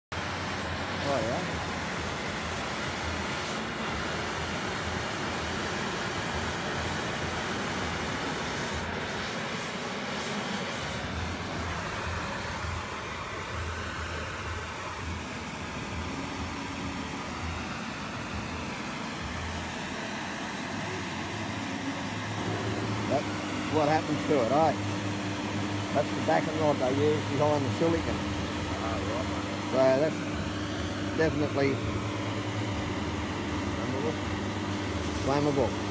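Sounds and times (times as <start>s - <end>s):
blowtorch hissing: 0.1s - 35.9s
foam crackling in flame: 0.1s - 35.9s
person speaking: 22.4s - 24.9s, 25.8s - 30.3s, 31.1s - 32.0s, 33.7s - 34.3s.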